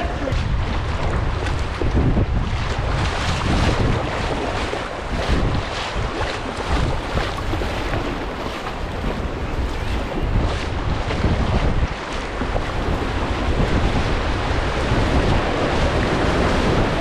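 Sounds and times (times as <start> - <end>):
paddle strokes splashing: 0.0 - 17.0
rushing whitewater: 0.0 - 17.0
wind rumbling on microphone: 0.0 - 17.0.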